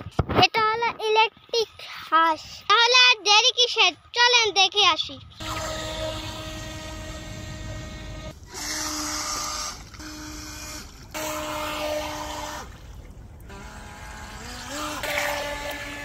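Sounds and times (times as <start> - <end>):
small electric motor whine: 5.4 - 16.0
water hissing: 5.4 - 16.0.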